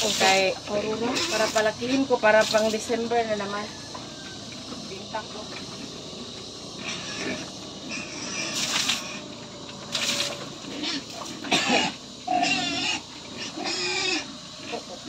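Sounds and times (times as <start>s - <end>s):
pigs squealing: 0.1s - 2.4s, 6.6s - 15.0s.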